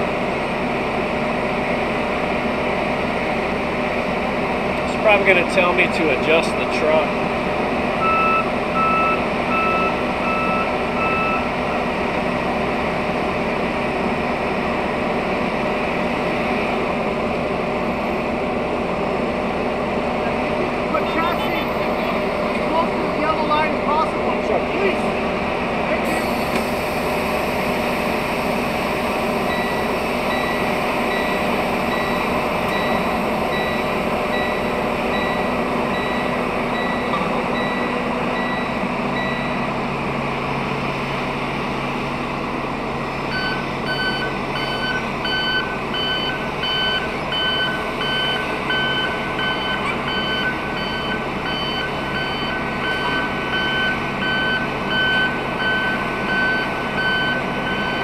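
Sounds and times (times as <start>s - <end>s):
diesel truck engine: 0.0s - 58.0s
electronic warning alarm beeping: 8.0s - 11.5s, 29.5s - 39.7s, 43.3s - 58.0s.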